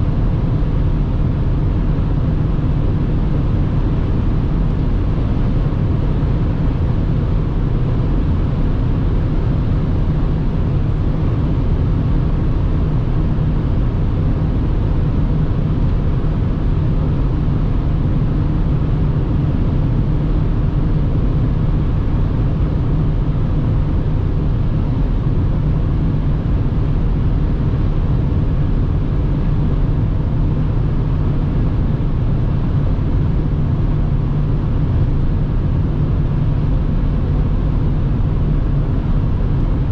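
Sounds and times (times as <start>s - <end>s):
in-cabin car drive rumble: 0.0s - 39.9s.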